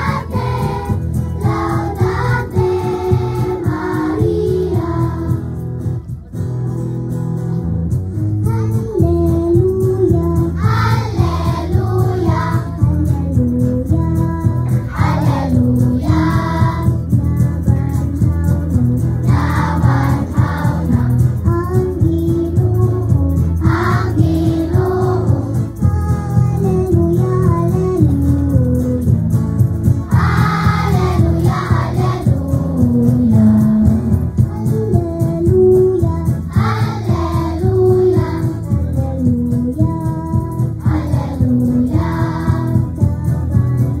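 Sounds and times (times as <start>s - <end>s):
children's choir singing a hymn: 0.0s - 5.5s, 10.6s - 12.8s, 14.9s - 17.0s, 19.3s - 21.2s, 23.6s - 25.5s, 30.1s - 32.6s, 36.5s - 38.7s, 40.8s - 42.9s.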